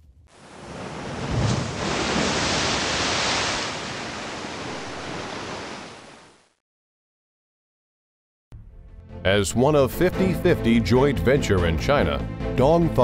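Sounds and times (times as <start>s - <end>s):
ocean wave breaking: 0.3s - 6.6s.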